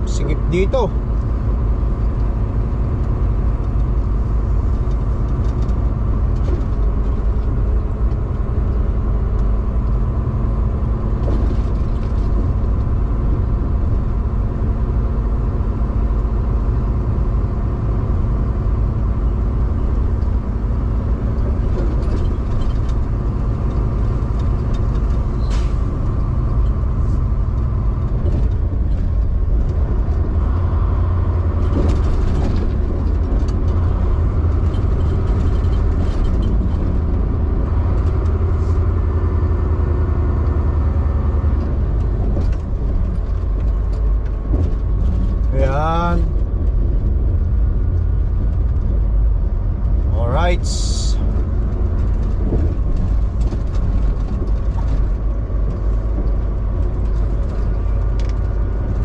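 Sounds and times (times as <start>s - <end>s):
road noise: 0.0s - 59.0s
truck diesel engine running: 0.0s - 59.0s.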